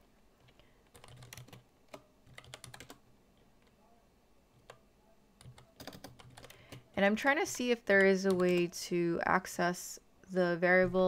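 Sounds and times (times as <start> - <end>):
typing on computer keyboard: 0.4 - 3.0, 5.4 - 8.7.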